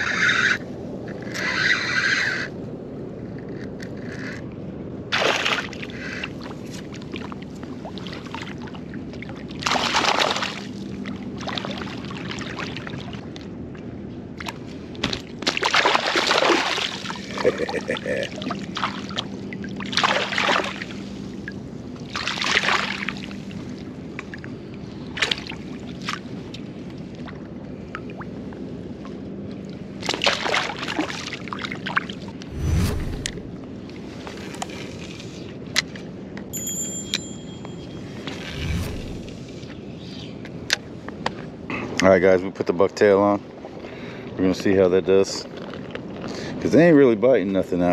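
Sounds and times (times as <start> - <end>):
water splashing and sloshing: 5.1 - 36.3.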